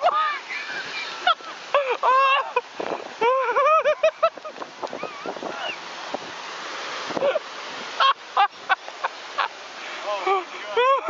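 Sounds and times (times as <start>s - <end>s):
water rushing and splashing: 0.0s - 11.0s
wind buffeting microphone: 2.7s - 3.2s, 4.3s - 7.9s.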